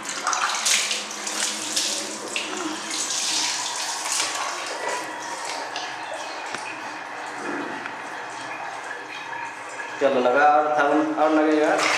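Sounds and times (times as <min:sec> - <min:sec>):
water splashing on tiled floor: 0:00.0 - 0:06.8.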